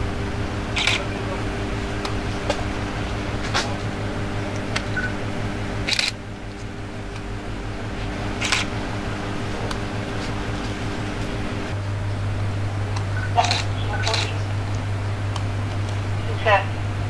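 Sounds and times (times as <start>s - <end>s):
electrical hum of lamps and fans: 0.0s - 17.0s
low mains buzz: 0.0s - 17.0s.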